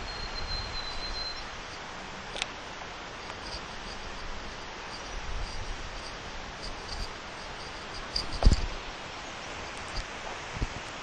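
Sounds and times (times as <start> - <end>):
steady hiss: 0.0 - 11.0
soft low bumps: 3.5 - 8.8.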